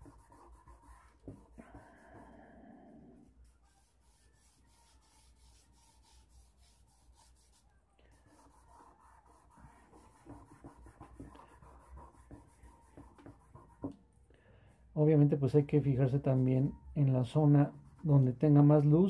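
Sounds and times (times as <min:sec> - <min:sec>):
charcoal scratching on paper: 0:00.0 - 0:02.2, 0:03.2 - 0:14.0, 0:17.4 - 0:18.3.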